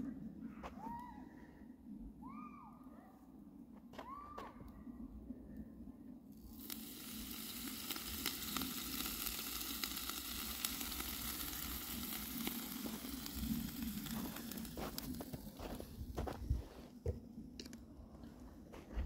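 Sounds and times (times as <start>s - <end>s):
fish sizzling on charcoal grill: 6.4s - 16.4s.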